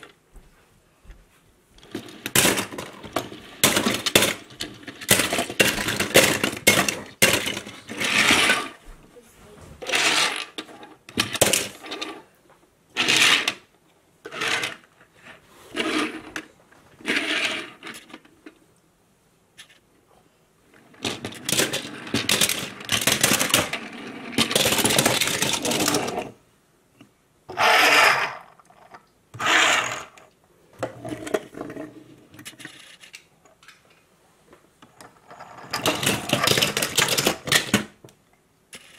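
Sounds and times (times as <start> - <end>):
toy cars clattering into plastic bin: 1.8 - 8.8, 9.8 - 12.1, 21.0 - 26.4, 35.0 - 38.0
toy cars rolling on tabletop: 1.8 - 8.8, 9.8 - 18.6, 20.7 - 26.4, 27.5 - 33.7, 34.8 - 38.0.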